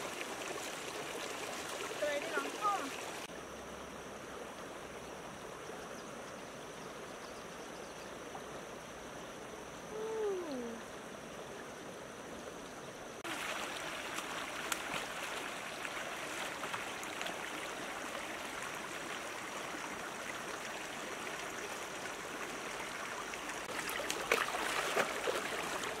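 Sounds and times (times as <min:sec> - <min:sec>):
sharp water splashes: 0:00.0 - 0:03.3, 0:13.2 - 0:19.7, 0:20.5 - 0:26.0
stream running over rocks: 0:00.0 - 0:07.2, 0:08.1 - 0:26.0.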